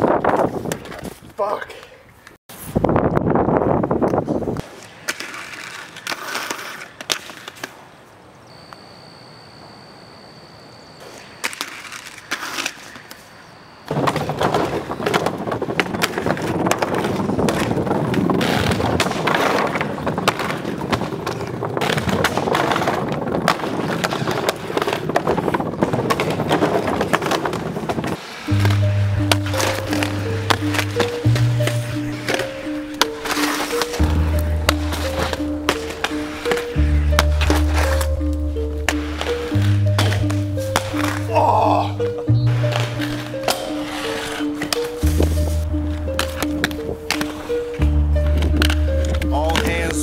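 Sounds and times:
skate wheels rolling on pavement: 0.0 - 8.9, 10.9 - 50.0
skate landings knocking on wood: 13.9 - 41.3.

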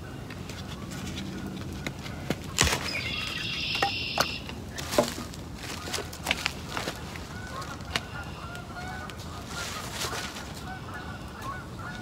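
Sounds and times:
dry sticks snapping and knocking: 0.2 - 3.0, 3.7 - 9.2.

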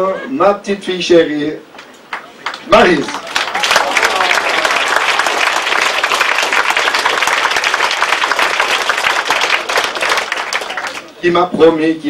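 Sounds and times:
audience applauding: 2.1 - 11.2.

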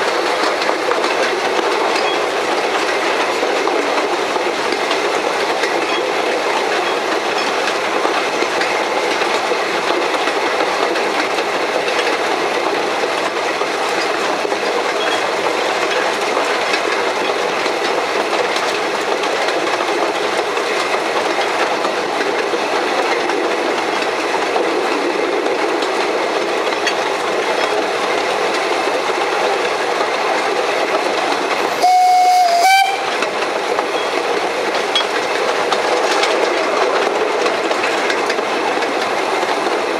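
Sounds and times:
steam locomotive running on rails: 0.0 - 39.9
steam whistle: 31.7 - 33.2.

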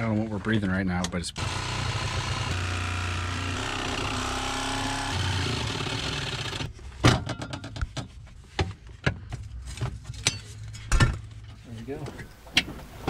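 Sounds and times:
jigsaw cutting through steel: 1.4 - 6.7.

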